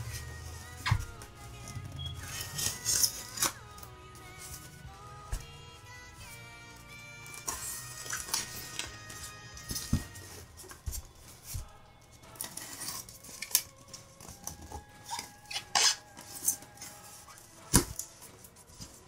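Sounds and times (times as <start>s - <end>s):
packing tape peeling: 0.1s - 4.7s, 7.1s - 10.8s, 12.3s - 18.6s
foam box scrapes and squeaks: 2.0s - 3.6s, 14.4s - 19.0s.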